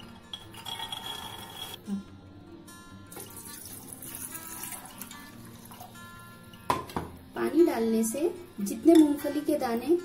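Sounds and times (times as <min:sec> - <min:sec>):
acoustic guitar music: 0:00.0 - 0:10.0
water pouring into a bowl: 0:03.1 - 0:06.1.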